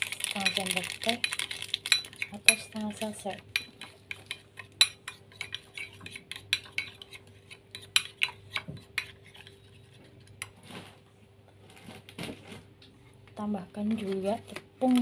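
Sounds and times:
metal spoon stirring in ceramic bowl: 0:00.0 - 0:10.6.

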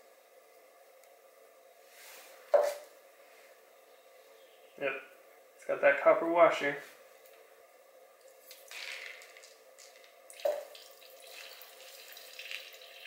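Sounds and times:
coolant dripping and trickling: 0:08.4 - 0:13.0
liquid splash: 0:08.4 - 0:13.0.

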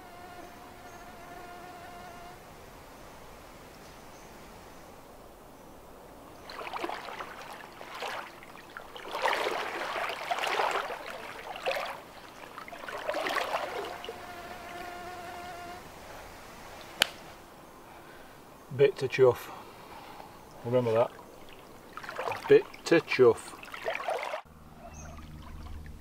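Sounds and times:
insect buzzing: 0:00.0 - 0:04.8, 0:06.4 - 0:17.7
wading steps splashing in water: 0:06.2 - 0:14.3, 0:20.6 - 0:24.4.

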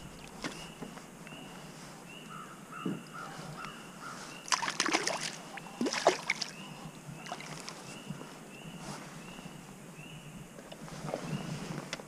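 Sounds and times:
bird calling: 0:00.0 - 0:10.3
fish splashing in water: 0:04.4 - 0:07.8.

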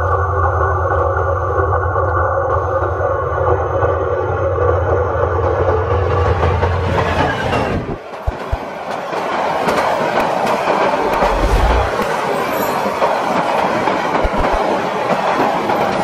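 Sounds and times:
diesel locomotive engine drone: 0:10.8 - 0:12.4.

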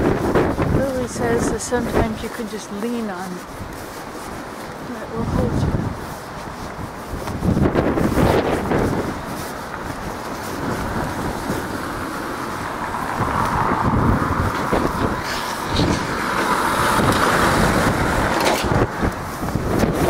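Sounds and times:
tyres on brick paving: 0:00.0 - 0:20.0
truck engine passing: 0:10.1 - 0:20.0.

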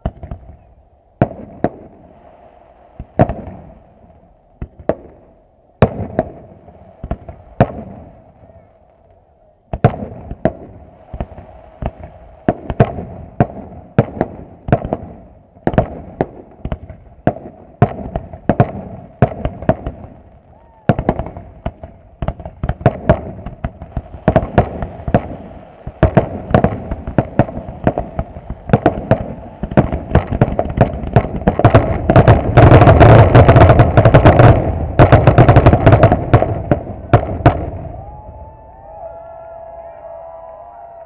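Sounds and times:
fireworks shells bursting: 0:18.0 - 0:37.7.

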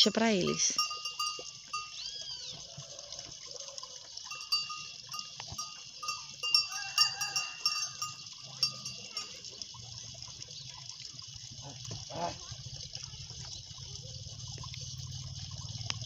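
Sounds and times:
high chirring with chirps: 0:00.7 - 0:02.6.

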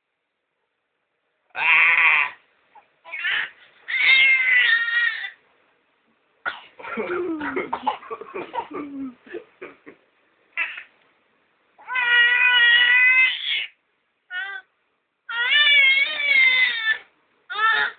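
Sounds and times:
baby squealing: 0:03.1 - 0:05.4, 0:10.6 - 0:10.9, 0:11.8 - 0:14.6, 0:15.3 - 0:17.9
choppy low vocal sounds: 0:07.0 - 0:09.4.

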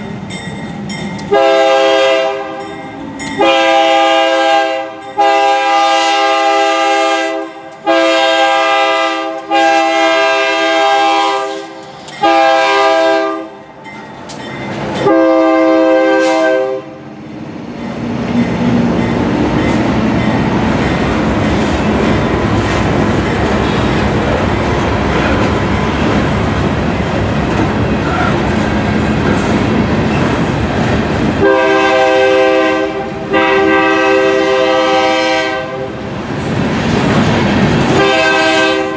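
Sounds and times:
freight train rumbling over rails: 0:00.0 - 0:38.9
locomotive air horn: 0:01.3 - 0:02.7, 0:03.4 - 0:13.6, 0:15.0 - 0:17.0, 0:31.4 - 0:36.0, 0:37.9 - 0:38.9.

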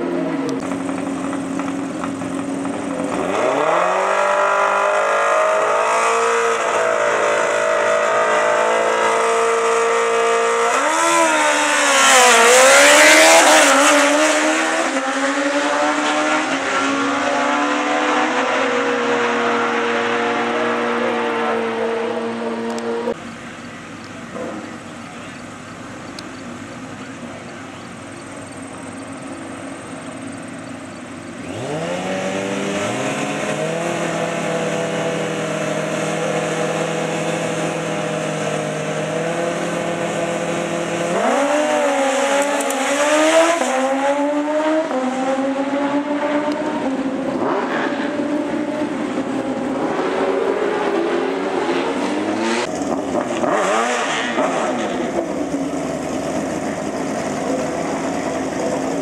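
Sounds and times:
motorcycle engines revving: 0:00.0 - 0:59.0.

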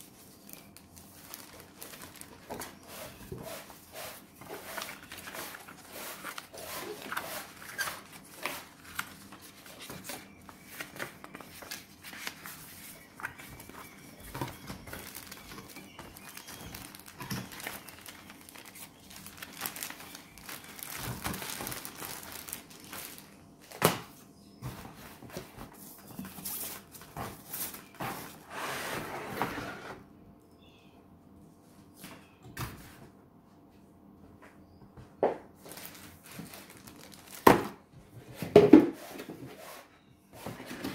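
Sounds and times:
plastic bags and paper crinkling: 0:00.0 - 0:23.9, 0:35.6 - 0:37.9.

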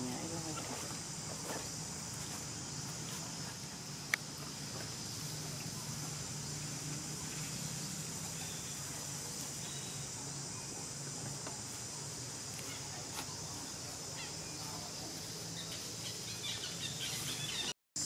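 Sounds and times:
insect chorus: 0:00.0 - 0:17.7.

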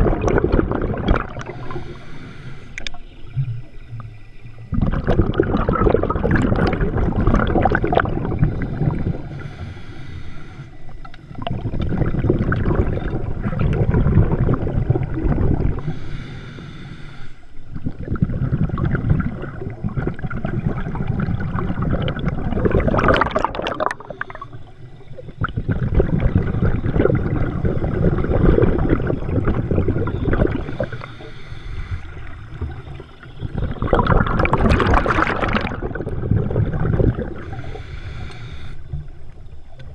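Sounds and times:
exhaled bubbles gurgling: 0:00.0 - 0:10.1, 0:10.9 - 0:16.6, 0:17.6 - 0:39.9
diver breathing through regulator: 0:01.4 - 0:03.2, 0:07.8 - 0:12.5, 0:15.8 - 0:17.6, 0:23.9 - 0:25.2, 0:30.4 - 0:33.8, 0:37.1 - 0:39.0.

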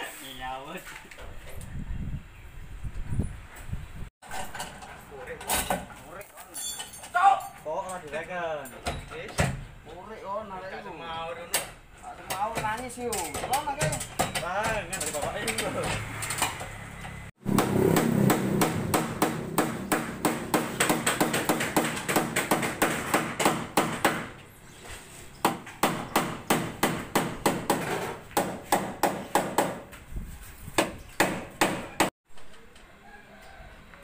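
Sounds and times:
hammer blows on sheet steel: 0:17.4 - 0:24.4, 0:25.4 - 0:30.0.

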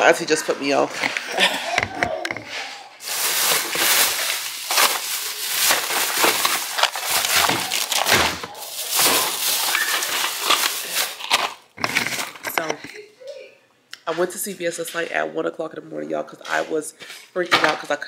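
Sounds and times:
plastic bag crinkling: 0:01.8 - 0:12.9.

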